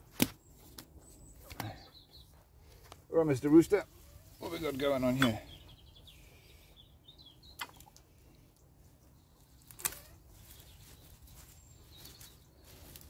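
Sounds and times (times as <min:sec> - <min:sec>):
faint bird chirps: 0:05.2 - 0:13.0
secateurs snipping stems: 0:09.6 - 0:10.1.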